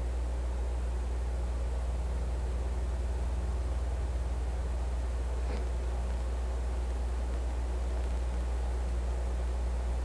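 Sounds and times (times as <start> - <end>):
constant hiss: 0.0 - 10.0
low electrical hum: 0.0 - 10.0.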